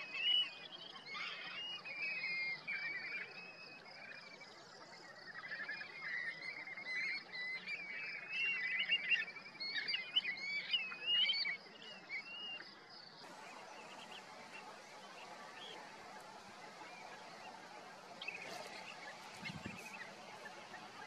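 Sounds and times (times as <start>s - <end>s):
faint outdoor hiss: 0.0s - 21.0s
shorebirds calling: 13.2s - 21.0s.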